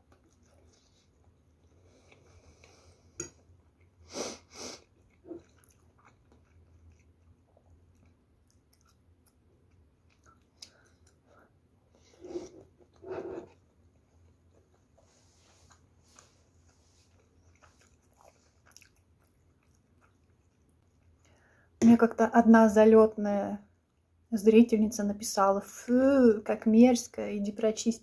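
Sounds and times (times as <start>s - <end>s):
chewing food: 0.0s - 21.8s.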